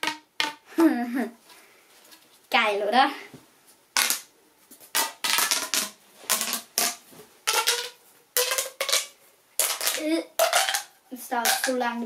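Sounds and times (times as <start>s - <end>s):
plastic pop tube popping: 0.0s - 0.7s, 4.0s - 4.3s, 4.9s - 11.8s.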